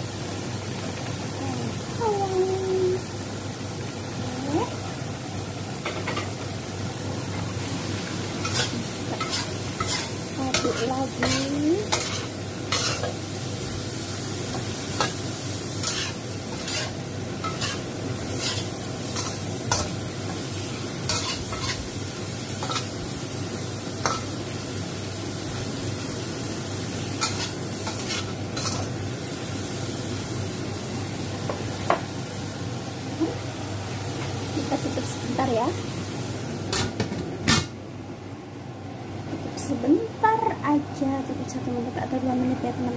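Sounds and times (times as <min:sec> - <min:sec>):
food sizzling in a wok: 0:00.0 - 0:37.9, 0:39.1 - 0:42.9
spatula scraping a wok: 0:08.4 - 0:13.2, 0:14.9 - 0:20.0, 0:21.0 - 0:22.0, 0:22.6 - 0:22.9, 0:24.0 - 0:24.3, 0:27.2 - 0:29.0.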